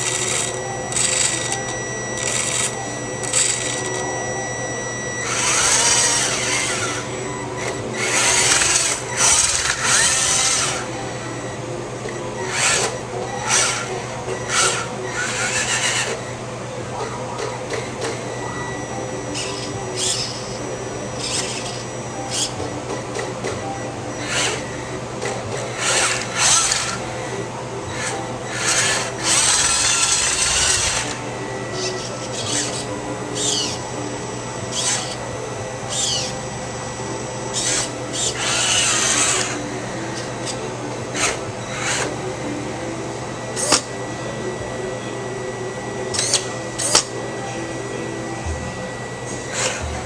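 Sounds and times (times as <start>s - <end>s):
toy motors whirring: 0.0s - 10.9s, 12.5s - 16.2s, 19.4s - 20.6s, 21.2s - 23.3s, 24.2s - 27.3s, 27.9s - 33.8s, 34.7s - 35.2s, 35.9s - 36.4s, 37.5s - 42.2s, 43.6s - 43.9s, 46.1s - 47.1s, 49.5s - 50.0s.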